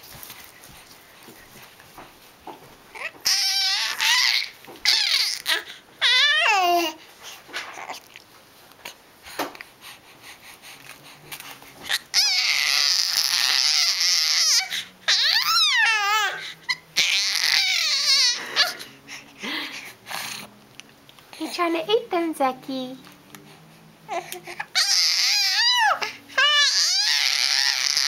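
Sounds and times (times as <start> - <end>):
baby squealing: 3.0 - 6.9, 11.9 - 18.8, 24.1 - 28.0.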